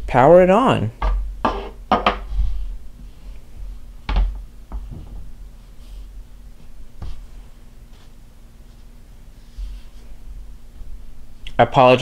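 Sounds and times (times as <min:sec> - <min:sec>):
objects knocking on a desk: 0:01.0 - 0:02.3.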